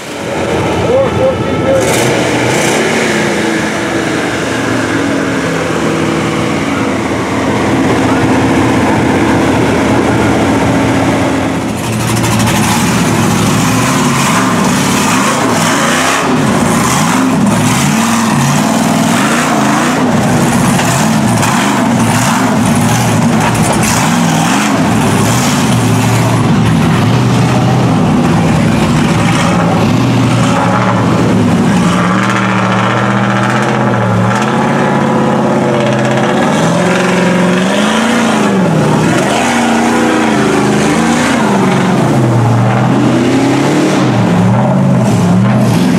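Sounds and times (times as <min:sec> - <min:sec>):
truck engines revving: 0:00.0 - 0:45.9.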